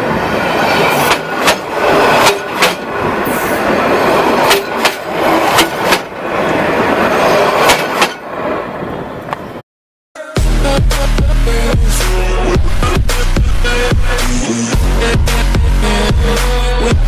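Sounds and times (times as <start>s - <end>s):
train wheels rumbling overhead: 0.0s - 9.3s
wheels clacking over rail joints: 0.4s - 8.7s.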